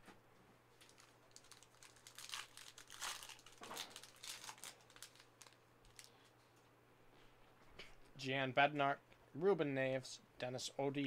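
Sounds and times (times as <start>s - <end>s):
plastic wrapper tearing and crinkling: 0.8s - 6.1s.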